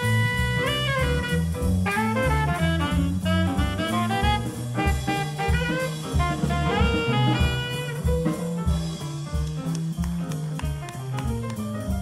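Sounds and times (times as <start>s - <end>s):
saxophone and brass lines: 0.0s - 8.5s
drum kit: 0.0s - 12.0s
upright bass walking: 0.0s - 12.0s.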